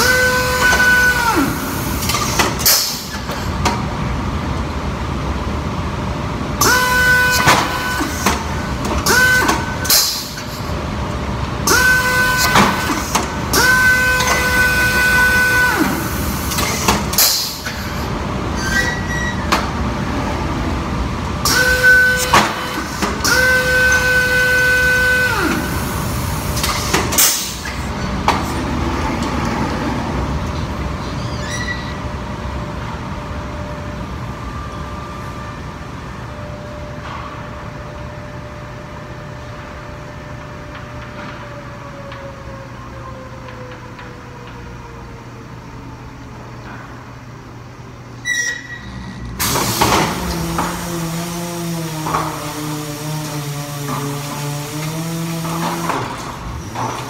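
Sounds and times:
loud bursts of air: 0.0 - 3.7, 6.6 - 11.0, 11.6 - 18.7, 21.4 - 28.9, 49.3 - 57.0
air motor whining: 0.0 - 3.9, 6.4 - 30.7, 48.2 - 57.0.

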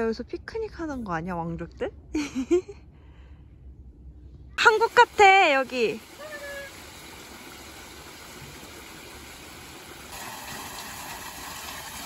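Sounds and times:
water running over rocks: 4.6 - 12.0.

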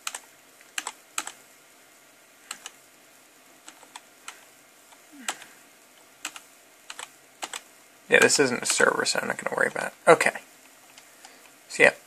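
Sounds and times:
computer keyboard key clicks: 0.0 - 0.2, 0.8 - 1.4, 2.5 - 2.8, 6.2 - 7.6.

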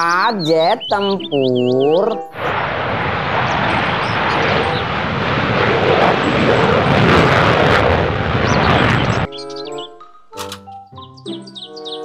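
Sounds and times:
fighter jet taking off: 2.4 - 9.3.

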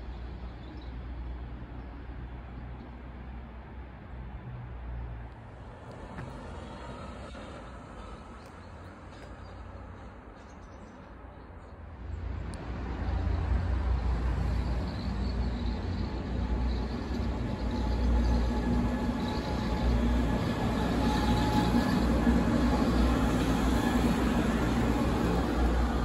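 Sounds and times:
tram rumbling over bridge: 0.0 - 26.0.

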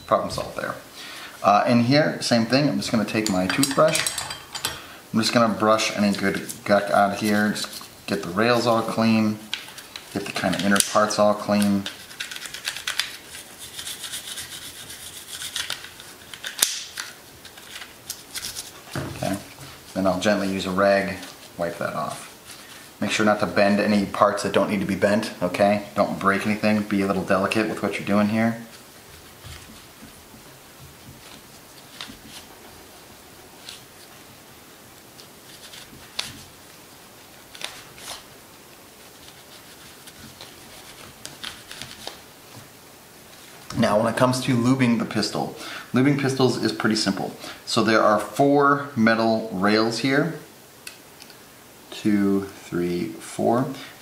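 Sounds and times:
cloth rag rubbing: 9.8 - 16.3, 17.4 - 23.8, 35.0 - 36.6, 38.9 - 42.6
toothbrush scrubbing metal: 10.4 - 16.4.

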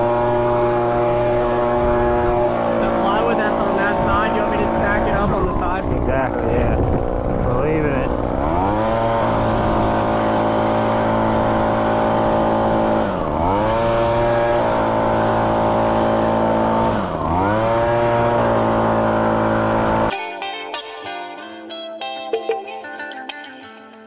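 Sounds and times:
leaf blower revving: 0.0 - 20.5
music: 20.1 - 24.0.

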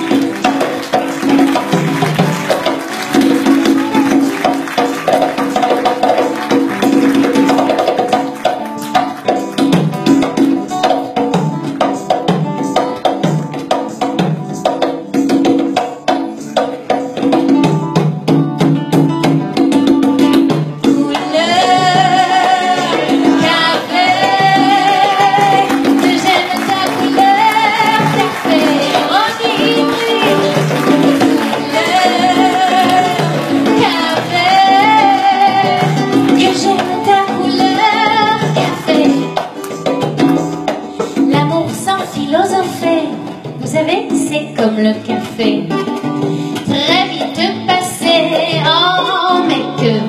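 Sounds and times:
congas: 0.0 - 50.0
guitar: 0.0 - 50.0
hand percussion: 0.0 - 50.0
woman singing: 19.8 - 50.0.

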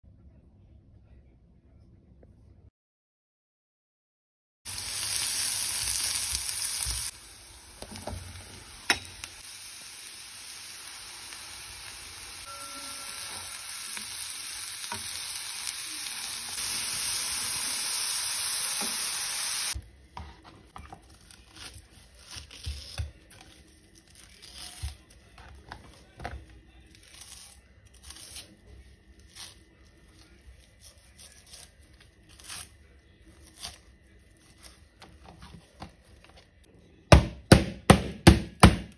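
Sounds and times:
mushrooms and onion sizzling in pan: 4.7 - 19.8
wooden spatula stirring: 19.8 - 22.0.

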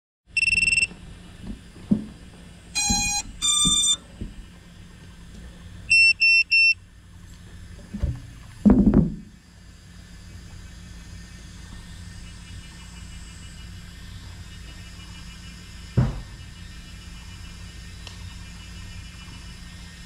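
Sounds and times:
high electronic beeps: 0.4 - 0.9, 2.8 - 4.0, 5.9 - 6.8
motor start-up tones: 0.4 - 1.0, 2.7 - 4.9, 5.8 - 6.9, 9.4 - 20.0
handling knocks on frame: 7.9 - 9.3, 16.0 - 16.4.

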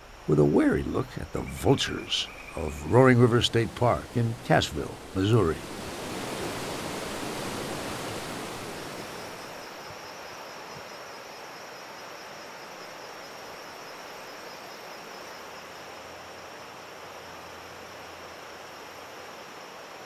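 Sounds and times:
water rushing over stones: 1.7 - 9.7.

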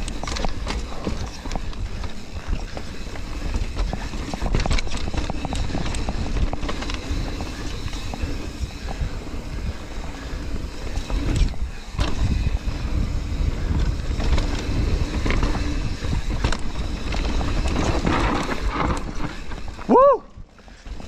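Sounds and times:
bike chain and frame rattling: 0.0 - 21.0
tyres rumbling over rock: 10.8 - 19.9.

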